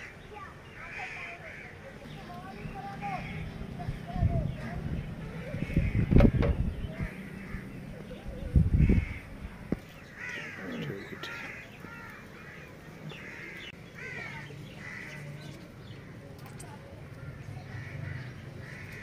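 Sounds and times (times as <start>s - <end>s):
crows cawing: 0.0s - 1.9s, 5.3s - 7.8s, 8.8s - 9.4s, 10.0s - 16.2s, 17.0s - 19.0s.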